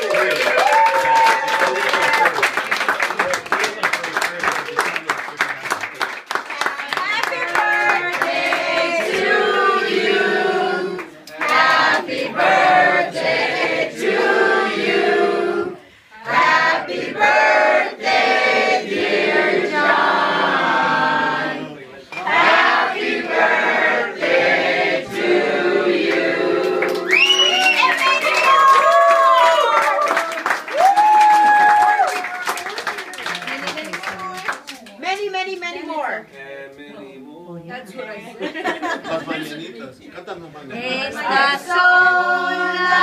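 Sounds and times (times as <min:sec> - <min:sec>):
group of people singing together: 0:07.2 - 0:27.3, 0:40.7 - 0:43.0.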